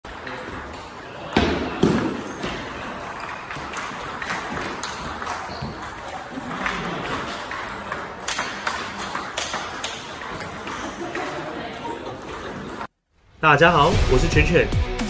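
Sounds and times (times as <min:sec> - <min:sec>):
murmur of voices: 0:00.1 - 0:12.9
table tennis ball clicks: 0:00.8 - 0:10.8.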